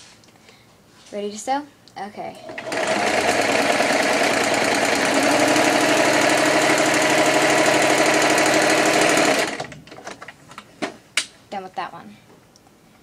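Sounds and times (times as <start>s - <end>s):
electric sewing machine stitching: 2.4s - 9.8s.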